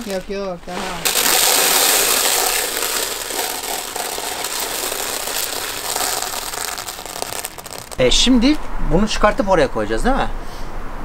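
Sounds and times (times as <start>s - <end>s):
clay pellets pouring into plastic: 0.0s - 8.0s.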